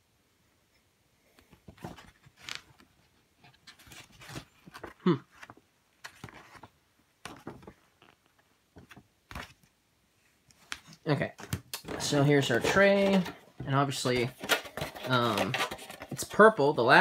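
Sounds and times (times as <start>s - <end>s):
rustles and taps of handling: 10.4s - 16.4s.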